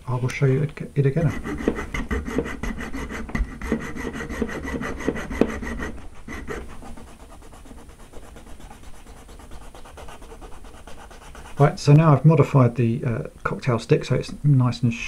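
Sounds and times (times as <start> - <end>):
hacksaw cutting plastic rod: 1.3 - 6.8.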